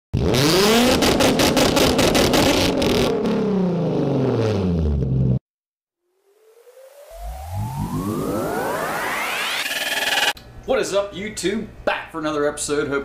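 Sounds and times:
car engine revving with crackle: 0:00.2 - 0:05.4
rising synth sweep: 0:06.0 - 0:10.4.

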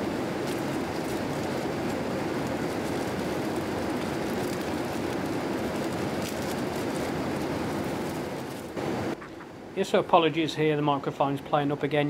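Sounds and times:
plastic wrapping crinkling: 0:00.0 - 0:08.8
airliner cabin noise: 0:00.0 - 0:12.0.

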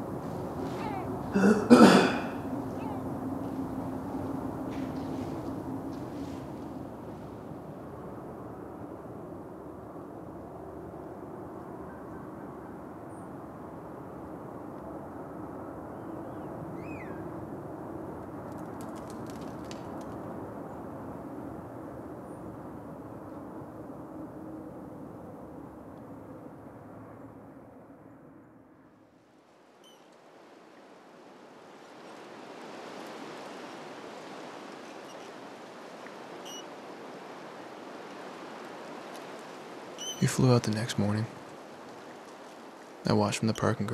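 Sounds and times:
bird calling: 0:00.6 - 0:03.2, 0:16.2 - 0:17.2, 0:29.8 - 0:30.1, 0:34.8 - 0:35.4, 0:36.4 - 0:36.8, 0:39.9 - 0:40.4.

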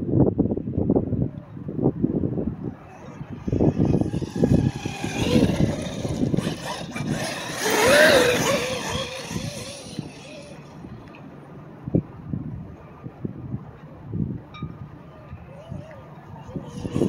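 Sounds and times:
wind or tyre noise: 0:00.0 - 0:17.0
rc truck motor whine: 0:02.8 - 0:11.2, 0:15.4 - 0:17.0.

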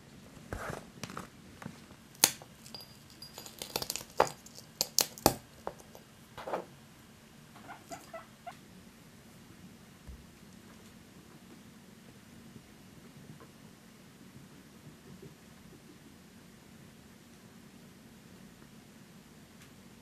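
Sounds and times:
crumbs ticking into dish: 0:02.1 - 0:06.1.

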